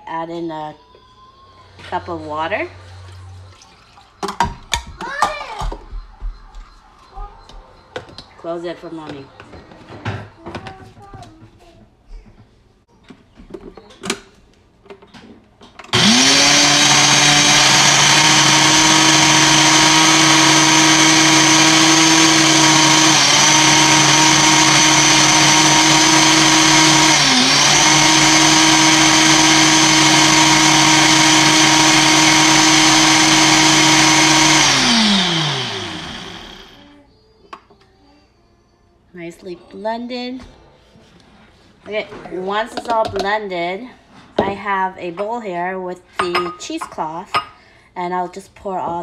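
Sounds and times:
blender running: 15.9 - 36.8.

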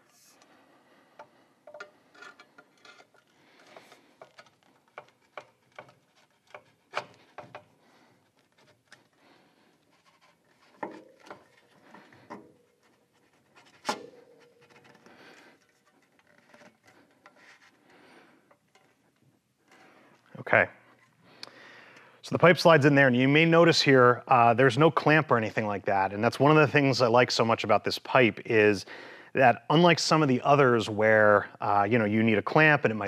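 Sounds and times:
metal clicks and knocks: 1.2 - 7.8
metal-on-metal scraping: 1.2 - 21.2.

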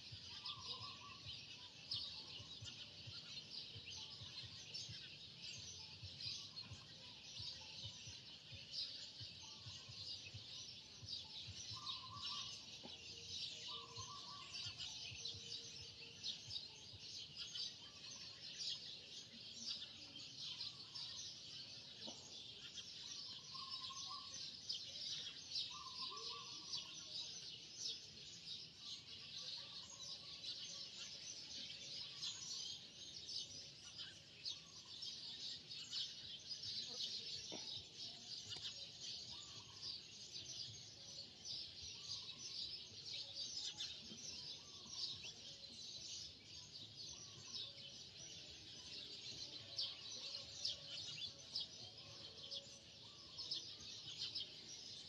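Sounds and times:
birds twittering chorus: 0.0 - 55.0.

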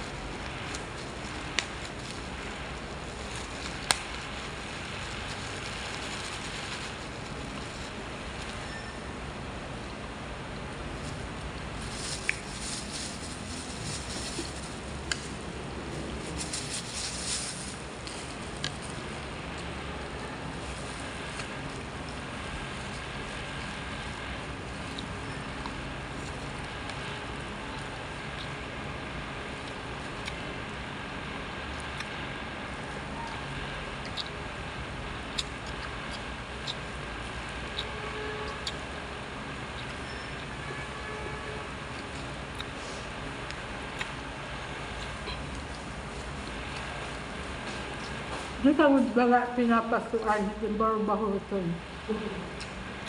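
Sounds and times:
low background rumble: 0.0 - 53.0
steady background noise: 0.0 - 53.0
person chewing: 35.3 - 36.8, 41.9 - 43.0, 43.8 - 44.2.

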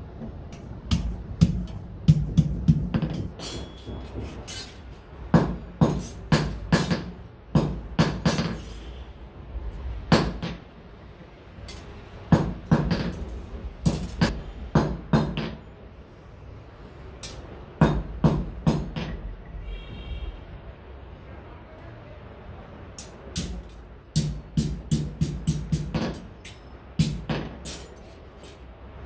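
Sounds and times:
hammer striking iron on anvil: 17.2 - 19.2, 23.0 - 27.8.

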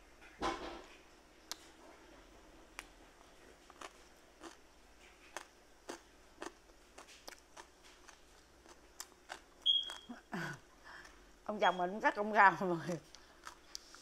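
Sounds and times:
crisp eating crunches: 2.8 - 10.2.

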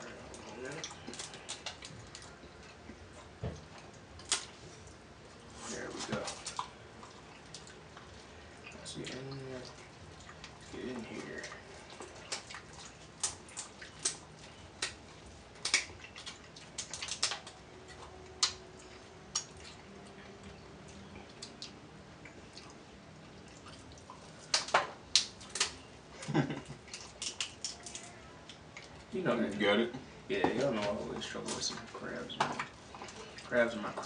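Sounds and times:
chewing clicks and smacks: 0.3 - 4.6, 11.4 - 22.8, 23.4 - 25.8, 26.8 - 29.0
crab shells cracking open: 0.7 - 2.2, 15.6 - 16.0, 16.6 - 17.6, 24.5 - 25.8, 26.9 - 28.7.

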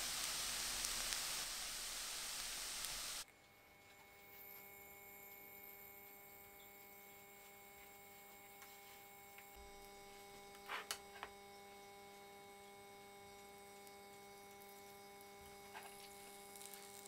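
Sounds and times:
faint electrical hum: 0.0 - 17.0.

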